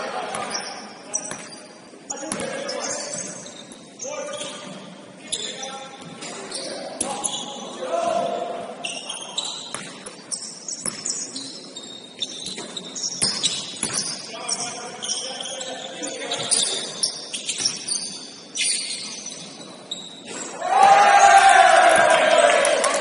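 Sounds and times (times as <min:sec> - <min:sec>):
players' voices: 0:00.0 - 0:09.6
shoes squeaking on gym floor: 0:00.4 - 0:07.8, 0:08.8 - 0:20.6.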